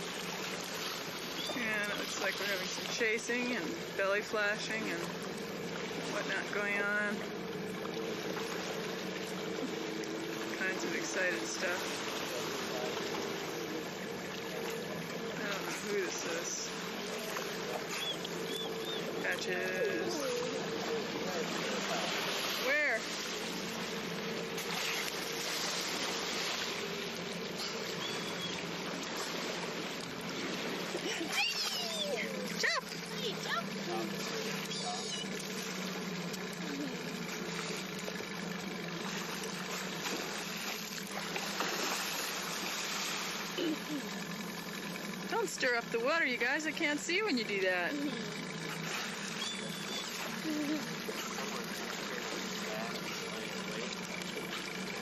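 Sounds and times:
water washing against boat: 0.0 - 55.0
faint voices: 9.3 - 25.4, 43.5 - 55.0.

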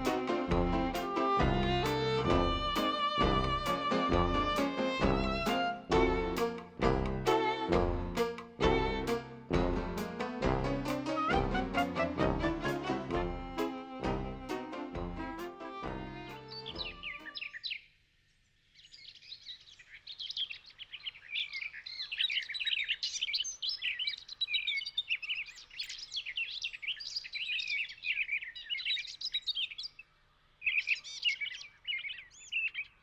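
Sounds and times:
songbirds chirping and singing: 0.0 - 7.8, 15.4 - 33.0.

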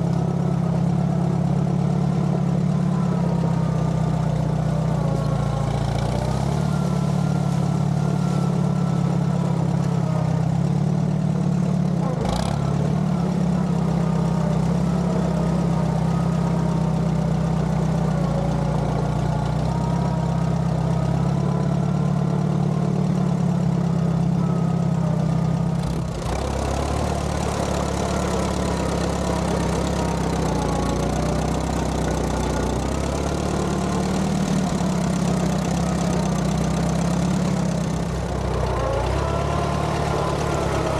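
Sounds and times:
tractor engine running: 0.0 - 40.9.

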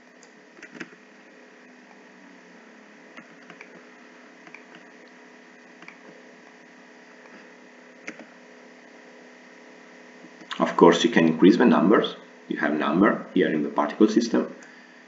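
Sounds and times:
low electrical hum and hiss: 0.0 - 15.0
keyboard and mouse clicks: 0.6 - 1.0, 3.2 - 3.7, 5.8 - 6.0, 8.1 - 8.3.

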